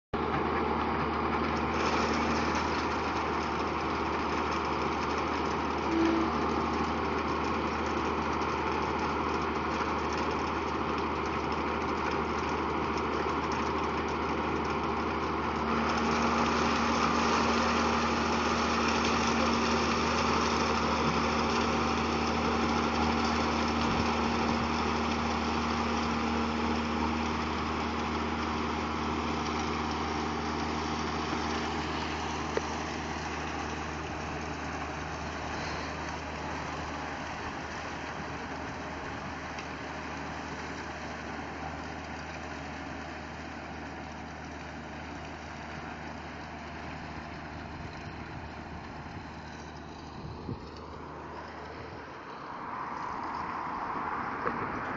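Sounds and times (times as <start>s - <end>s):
tractor diesel engine under load: 0.1s - 54.9s.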